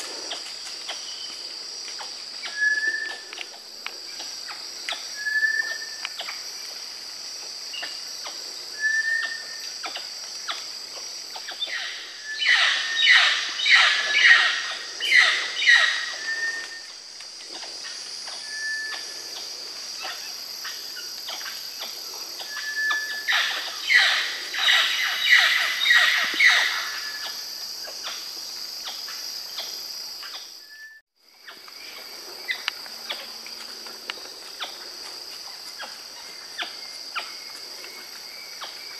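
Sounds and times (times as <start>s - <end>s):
high insect drone: 0.0s - 38.9s
whistled bird notes: 2.5s - 3.2s, 5.2s - 5.9s, 8.8s - 9.6s, 30.6s - 31.0s.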